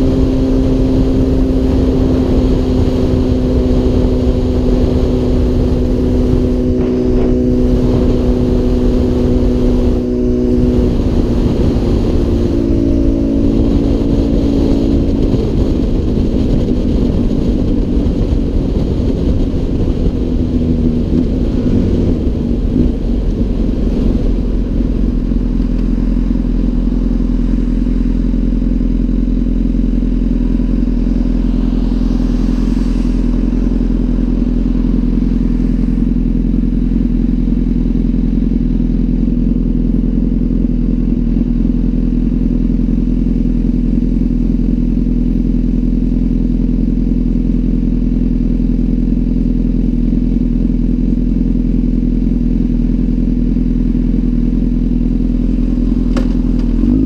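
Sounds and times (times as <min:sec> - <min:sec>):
wind noise on microphone: 0:00.0 - 0:27.9
motorcycle engine cruising: 0:00.0 - 0:57.0.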